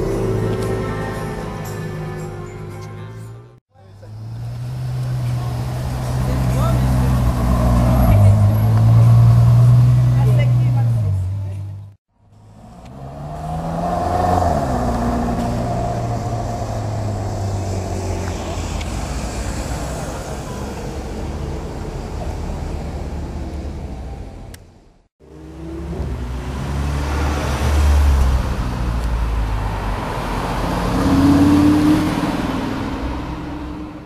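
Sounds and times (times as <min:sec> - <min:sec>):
sports car pulling away: 0:12.4 - 0:21.5
sports car passing by: 0:12.4 - 0:22.8, 0:25.2 - 0:34.0.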